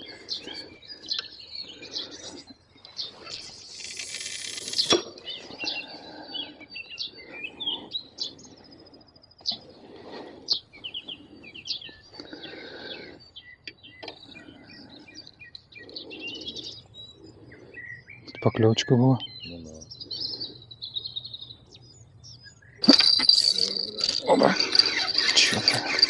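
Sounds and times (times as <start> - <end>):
songbirds chirping: 0.0 - 26.0
fishing line hissing off reel: 3.4 - 5.1
fishing reel winding: 3.7 - 4.9, 22.8 - 26.0.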